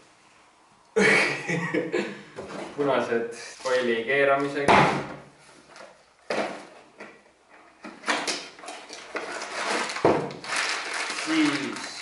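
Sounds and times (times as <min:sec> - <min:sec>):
packaging rustling and crinkling: 0:05.5 - 0:12.0.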